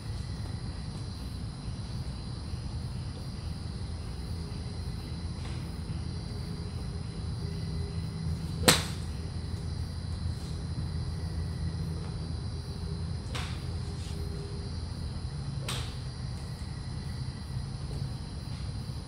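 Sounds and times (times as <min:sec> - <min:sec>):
steady low hum: 0:00.0 - 0:19.0
golf club striking ball: 0:08.6 - 0:09.2.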